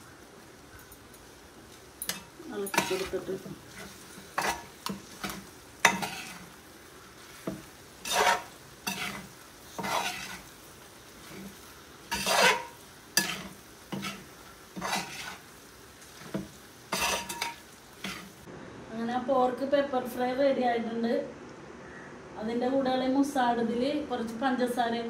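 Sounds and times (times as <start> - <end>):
faint sizzling: 0.0 - 21.3
utensil scraping a pan: 2.1 - 6.6, 7.2 - 10.5, 11.2 - 15.5, 16.2 - 18.4.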